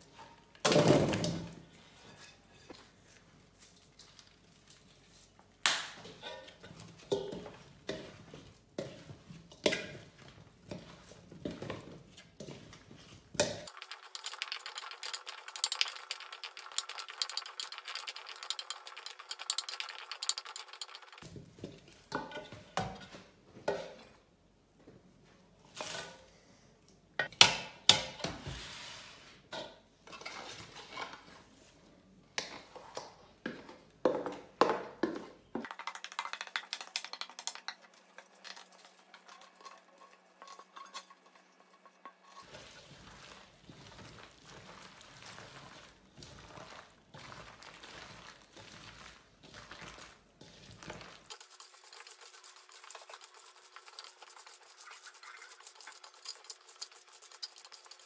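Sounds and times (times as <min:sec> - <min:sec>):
wet crackle of mixing: 0:03.1 - 0:05.7, 0:06.6 - 0:22.1, 0:35.6 - 0:58.0
bowls clanking: 0:13.4 - 0:21.2
radish chunks clicking on metal bowl: 0:13.4 - 0:21.2, 0:35.6 - 0:41.2.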